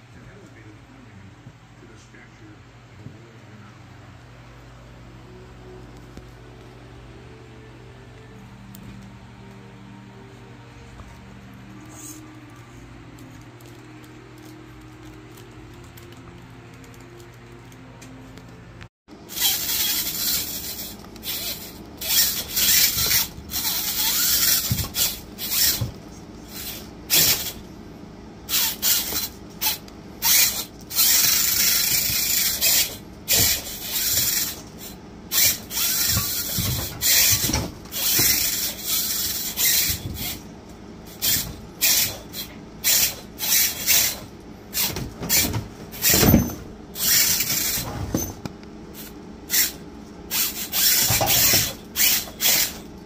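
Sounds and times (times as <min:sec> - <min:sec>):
rc car motor whirring: 0:19.3 - 0:27.7, 0:28.5 - 0:40.5, 0:41.1 - 0:46.4, 0:47.0 - 0:48.2, 0:48.9 - 0:53.0.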